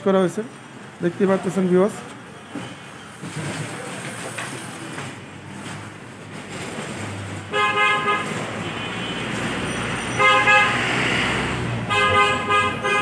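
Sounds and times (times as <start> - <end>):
background noise: 0.0 - 13.0
vehicle horn honk: 7.5 - 9.4, 10.1 - 10.8, 11.9 - 13.0.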